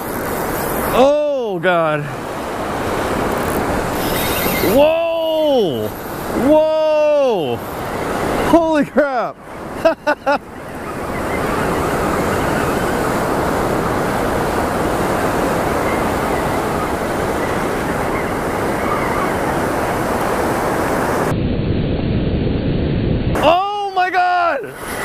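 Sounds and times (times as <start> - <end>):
ocean surf rushing: 0.0 - 25.0
wind buffeting microphone: 9.4 - 23.4.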